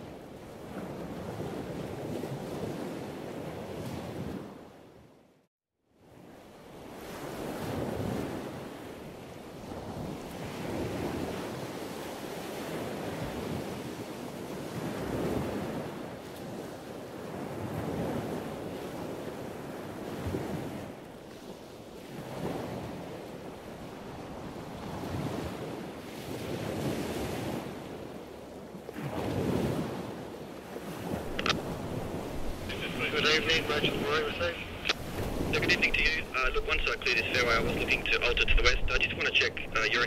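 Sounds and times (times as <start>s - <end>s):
waves breaking: 0.0s - 4.8s, 6.1s - 40.0s
wind rumbling on microphone: 28.9s - 39.9s.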